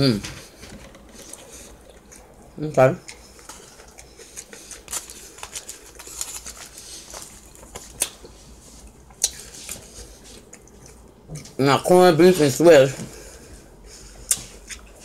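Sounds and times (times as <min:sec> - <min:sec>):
foil crinkling and rustling: 0:04.4 - 0:08.3.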